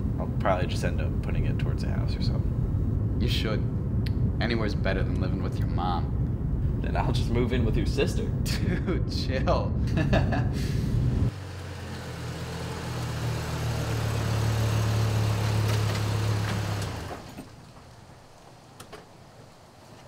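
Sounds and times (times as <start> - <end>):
truck engine idling: 11.1 - 19.9.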